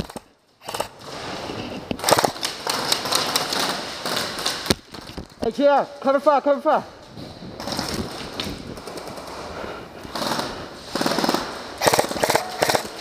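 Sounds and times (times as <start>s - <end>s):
airsoft rifles firing bursts: 2.0s - 4.7s, 10.1s - 13.0s.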